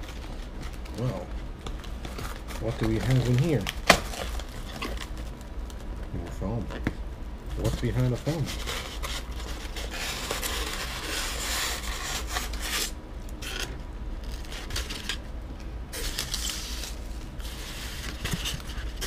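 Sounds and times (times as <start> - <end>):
foam scraping inside cardboard box: 8.2 - 13.6.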